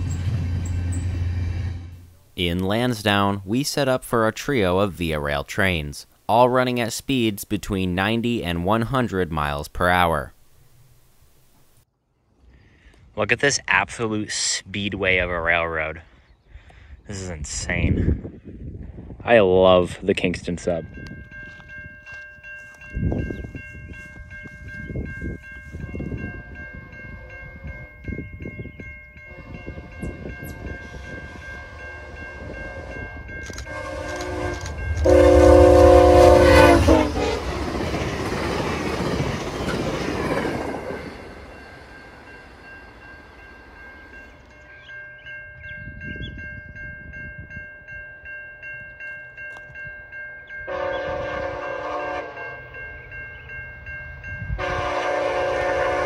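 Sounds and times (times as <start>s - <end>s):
train rushing past: 0.0s - 3.4s, 29.4s - 44.3s
crossing bell ringing: 2.0s - 5.8s, 20.4s - 56.0s
train horn blast: 29.3s - 37.5s, 50.7s - 52.7s, 54.6s - 56.0s
distant train horn: 29.3s - 37.6s, 50.7s - 52.8s, 54.5s - 56.0s.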